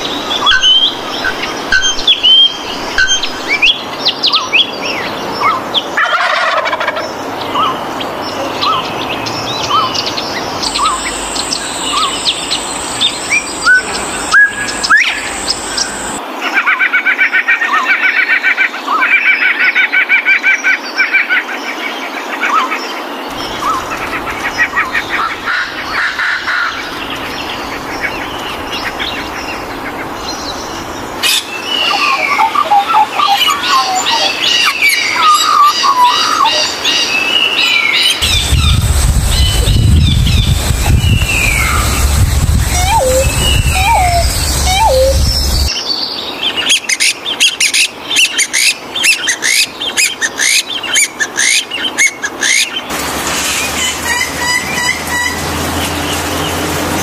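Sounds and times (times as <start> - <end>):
birds calling and chirping: 0.0 - 16.2, 21.8 - 57.0
bird repeating fast notes: 38.2 - 45.7.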